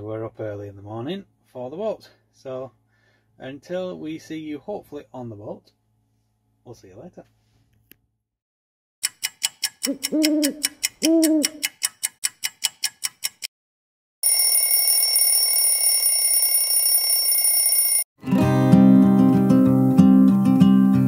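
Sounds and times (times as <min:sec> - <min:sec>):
clock ticking: 0:09.0 - 0:13.5
owl hoots: 0:09.9 - 0:11.7
alarm clock ringing: 0:14.2 - 0:18.1
acoustic guitar music: 0:18.2 - 0:21.0.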